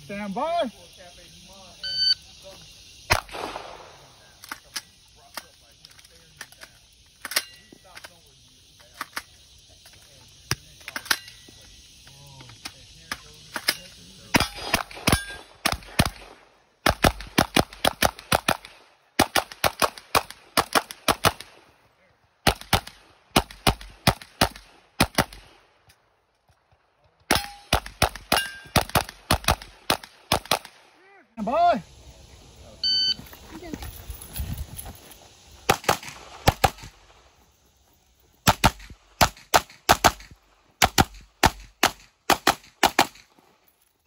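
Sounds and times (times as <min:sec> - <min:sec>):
carbine gunshots: 0:03.1 - 0:04.7, 0:13.5 - 0:21.7, 0:22.4 - 0:25.7, 0:27.3 - 0:30.9, 0:35.6 - 0:37.2, 0:38.4 - 0:43.4.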